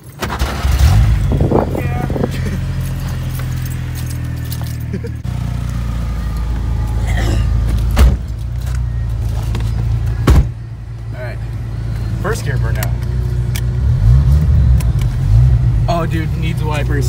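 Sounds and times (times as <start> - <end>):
truck engine running: 0.0 - 17.0.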